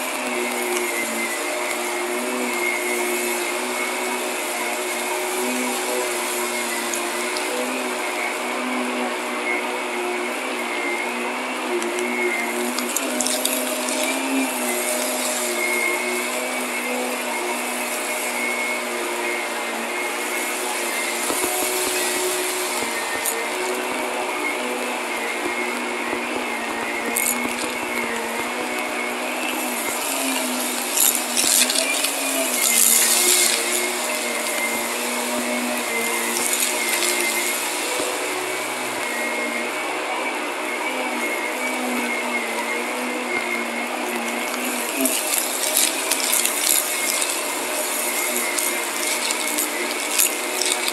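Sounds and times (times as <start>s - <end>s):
vacuum cleaner running: 0.0s - 50.9s
small ticks: 29.5s - 38.1s, 44.4s - 50.9s.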